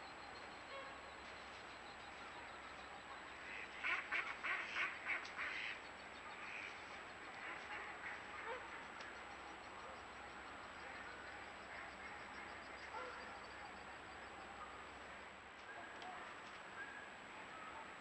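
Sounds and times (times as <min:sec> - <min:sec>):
ducks and geese calling: 0:02.5 - 0:09.4.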